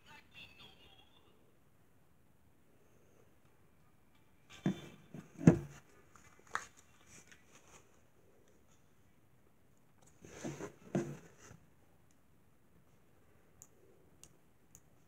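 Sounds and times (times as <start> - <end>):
headphones handling knocks: 4.7 - 5.8.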